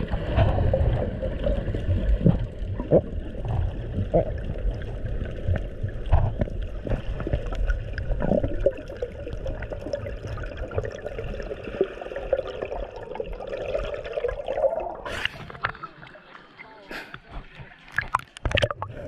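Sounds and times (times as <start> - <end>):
muffled underwater rumble: 0.0 - 13.4
bubbling: 0.0 - 16.3, 17.8 - 19.0.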